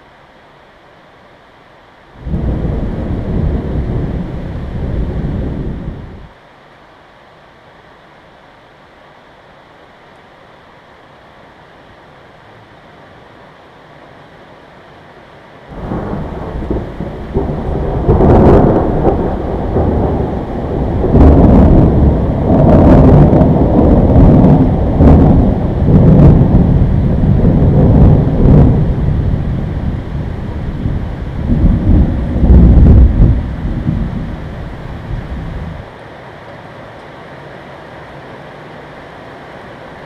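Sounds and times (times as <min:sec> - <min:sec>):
faint steady hiss: 0:00.0 - 0:40.0
rolling thunder with cracks: 0:02.2 - 0:06.3, 0:15.7 - 0:35.8.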